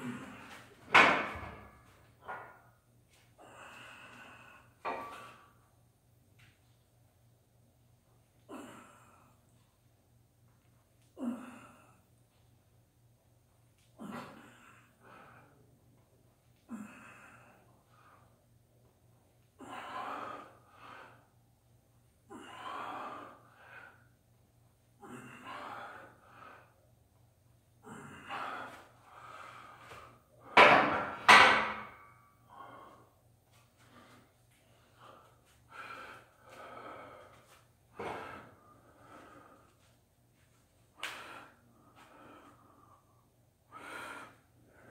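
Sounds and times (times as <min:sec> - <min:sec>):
heavy breathing: 0:22.3 - 0:24.2, 0:25.0 - 0:26.8, 0:27.8 - 0:44.9.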